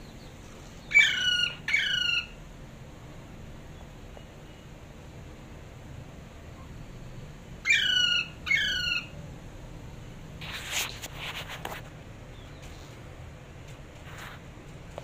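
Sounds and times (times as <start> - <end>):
parakeet squawking: 0.9 - 2.4, 7.6 - 9.2.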